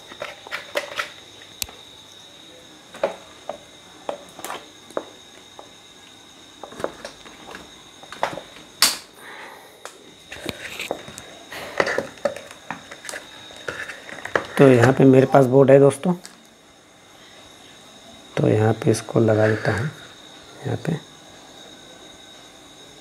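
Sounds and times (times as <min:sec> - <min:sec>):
small objects clicking and knocking: 0:00.0 - 0:01.8.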